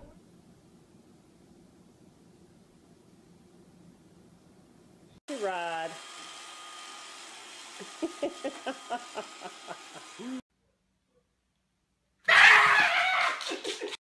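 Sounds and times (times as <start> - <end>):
person giggling: 7.8 - 10.4, 13.3 - 14.0.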